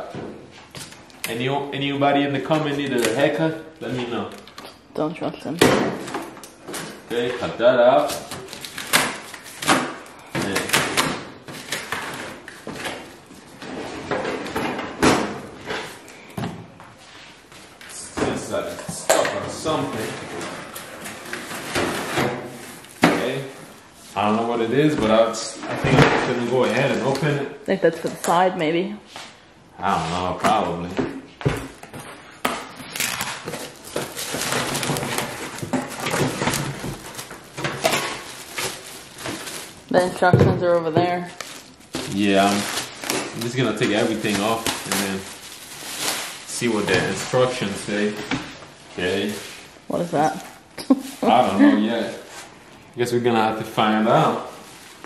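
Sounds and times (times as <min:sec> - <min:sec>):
cardboard and plastic rustling: 0:05.9 - 0:27.4, 0:30.4 - 0:52.6, 0:53.6 - 0:55.0
plastic wrap crinkling: 0:06.1 - 0:13.6, 0:32.6 - 0:55.0.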